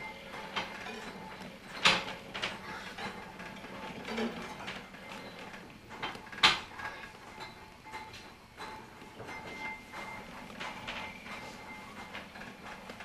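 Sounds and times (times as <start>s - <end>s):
funicular car rattling and clicking: 0.0s - 13.0s.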